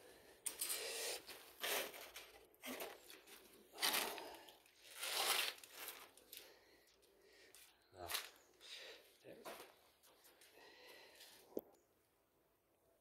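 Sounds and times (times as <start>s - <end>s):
rustling and scraping in cardboard box: 1.3s - 6.2s.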